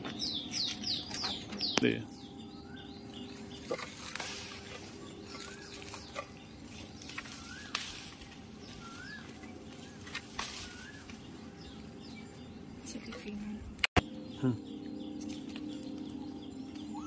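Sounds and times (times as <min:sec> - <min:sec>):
leaves rustling: 0:00.0 - 0:12.5
pole tapping branches: 0:03.6 - 0:12.0
bird whistling call: 0:07.2 - 0:11.7, 0:16.6 - 0:17.0.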